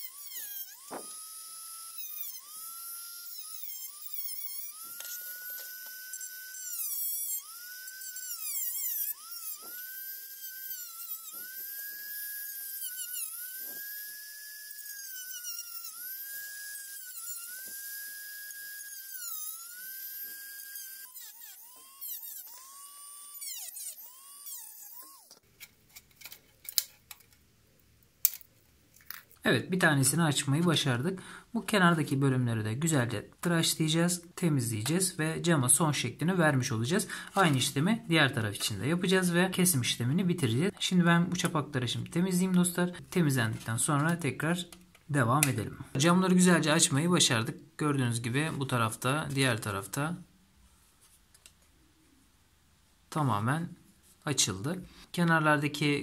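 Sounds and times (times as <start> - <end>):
rotary tool whining: 0.0 - 27.3.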